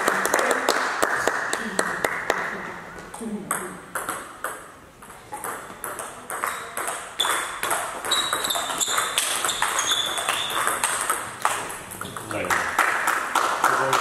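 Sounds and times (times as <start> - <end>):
table tennis ball hits and bounces: 3.5 - 13.3.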